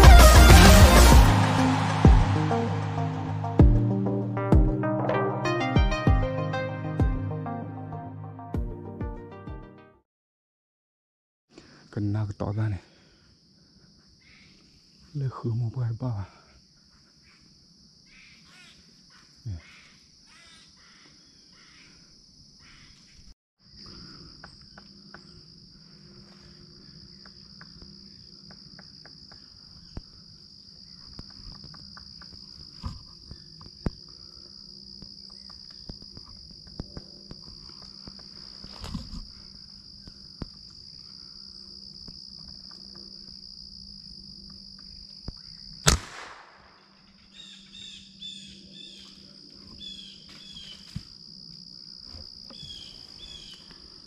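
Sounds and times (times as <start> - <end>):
insects droning: 11.5 - 54.0
loud sharp crack: 45.8 - 46.9
birds chirping: 47.2 - 50.8.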